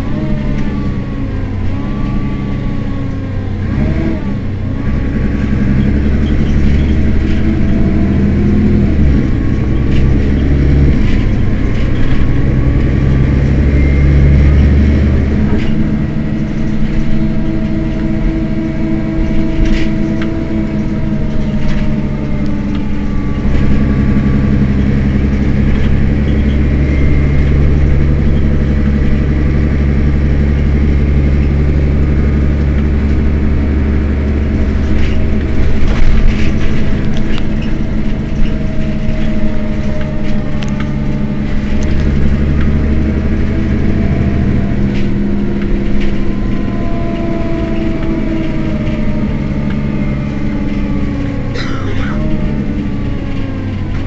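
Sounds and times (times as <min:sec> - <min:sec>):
bus engine idling: 0:00.0 - 0:54.0.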